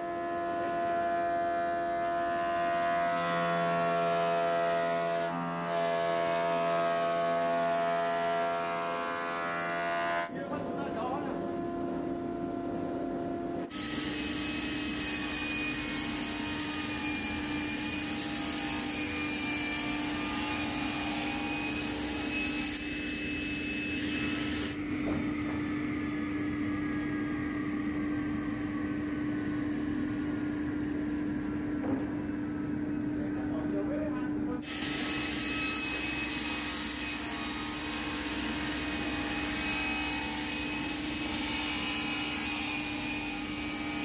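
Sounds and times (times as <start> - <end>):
saw blade cutting wood: 34.6 - 44.0.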